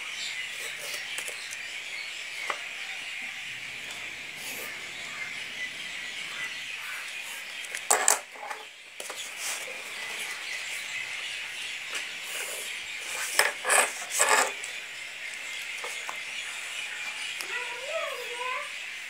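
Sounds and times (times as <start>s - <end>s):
pencil scraping on paper: 12.2s - 14.6s.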